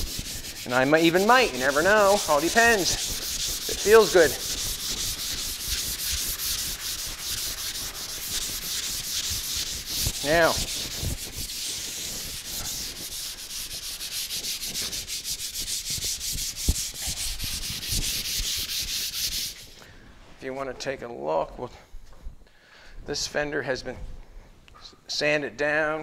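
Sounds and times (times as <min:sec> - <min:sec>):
sandpaper scratching on metal: 0:00.0 - 0:19.8.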